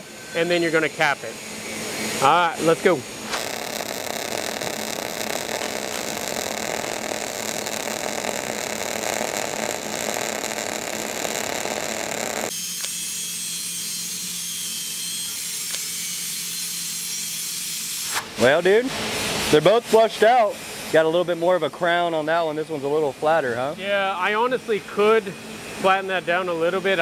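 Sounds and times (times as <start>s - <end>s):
welding arc crackling hiss: 2.2s - 13.0s.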